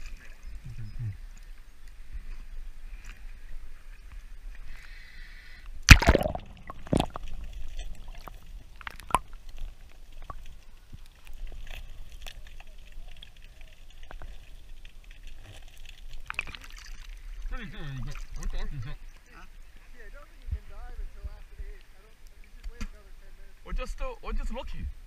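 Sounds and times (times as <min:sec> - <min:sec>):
muffled underwater water sounds: 0:00.0 - 0:25.0
loud water splash: 0:05.9 - 0:09.3.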